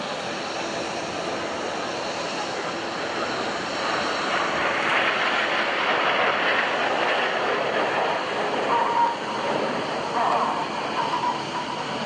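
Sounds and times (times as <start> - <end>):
jets flying past: 0.1 - 12.0.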